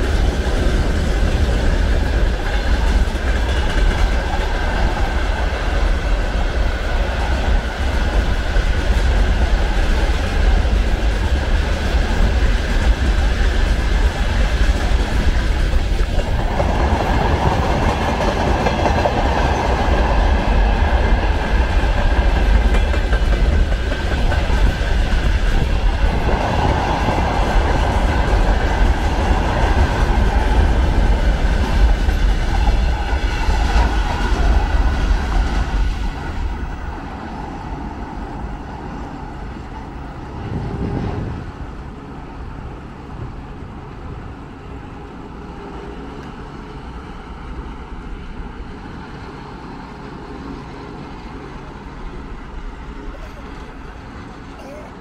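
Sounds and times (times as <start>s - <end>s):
train wheels clattering over rail joints: 0.0s - 36.5s
faint train rumble: 0.0s - 55.0s.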